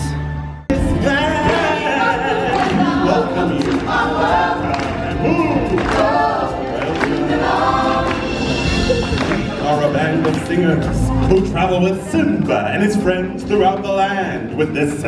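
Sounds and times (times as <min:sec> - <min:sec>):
background music: 0:00.0 - 0:15.0
choir singing: 0:00.7 - 0:10.8.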